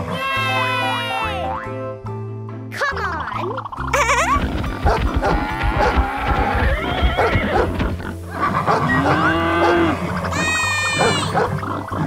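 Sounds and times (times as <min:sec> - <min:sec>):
children's background music: 0:00.0 - 0:12.0
cow mooing: 0:05.3 - 0:07.8, 0:08.7 - 0:11.5
high-pitched animal call: 0:08.8 - 0:12.0.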